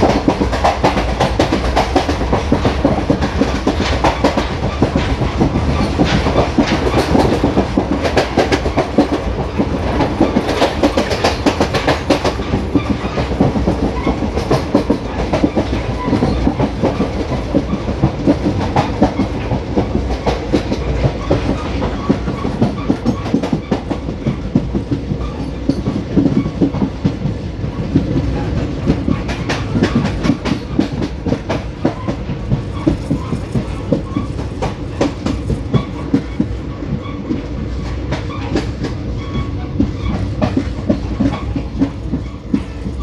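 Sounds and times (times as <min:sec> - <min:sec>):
train rumble: 0:00.0 - 0:43.0
train wheels clicking over rail joints: 0:00.0 - 0:43.0.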